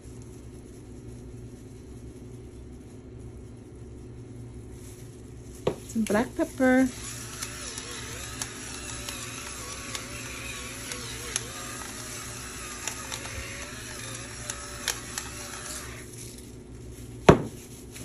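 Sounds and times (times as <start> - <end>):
electric pepper grinder whining: 6.5 - 16.5
grinding clicks: 6.9 - 16.1.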